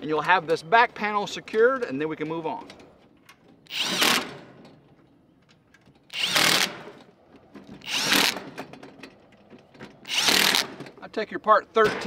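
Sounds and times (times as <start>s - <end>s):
cordless drill driving bolts: 3.5s - 4.7s, 6.0s - 9.0s, 9.7s - 11.0s.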